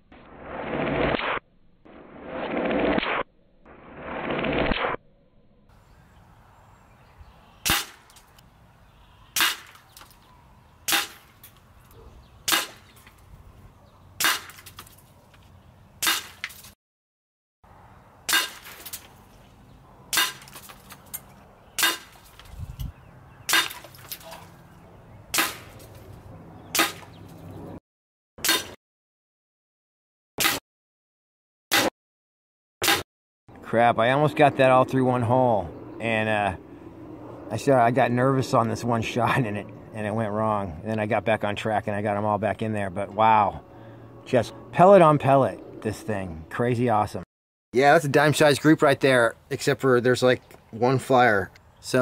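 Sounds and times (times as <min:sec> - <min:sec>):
air rifle shots: 0:07.6 - 0:08.1, 0:09.4 - 0:09.8, 0:12.5 - 0:12.9.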